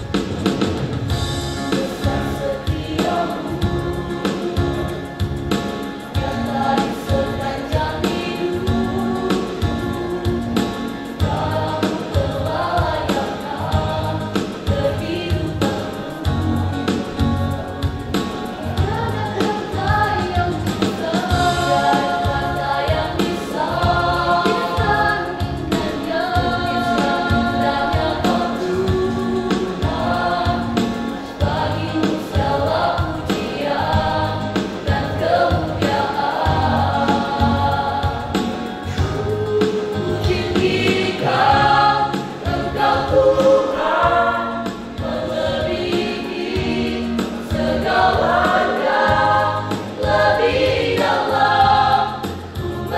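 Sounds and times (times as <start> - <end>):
choir singing gospel: 0.0 - 52.9.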